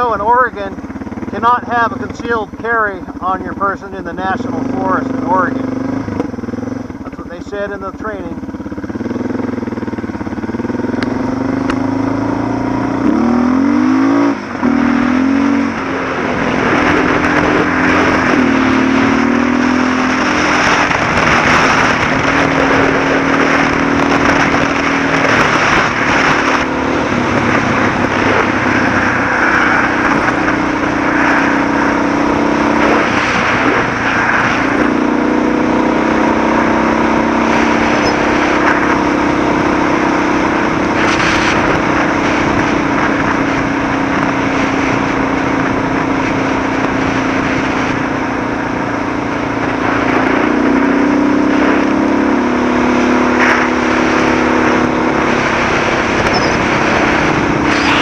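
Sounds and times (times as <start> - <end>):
motorcycle engine running: 0.0 - 58.0
wind rush: 12.1 - 58.0.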